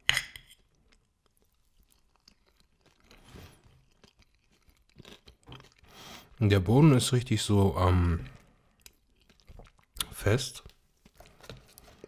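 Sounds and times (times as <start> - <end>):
faint chewing with mouth clicks: 0.5 - 6.4, 8.0 - 12.0.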